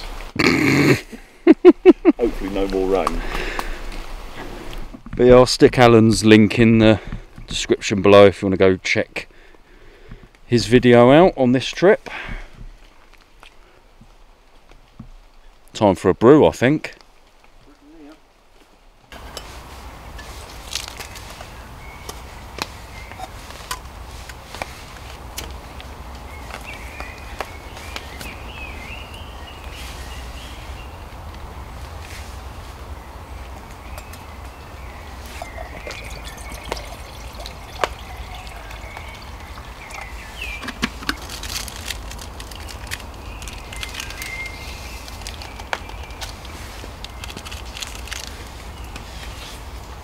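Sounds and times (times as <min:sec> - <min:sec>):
water dripping and trickling: 0:35.1 - 0:44.4.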